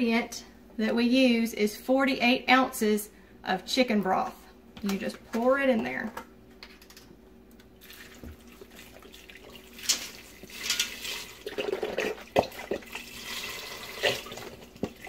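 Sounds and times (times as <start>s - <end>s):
broth pouring and splashing into pot: 7.8s - 15.0s.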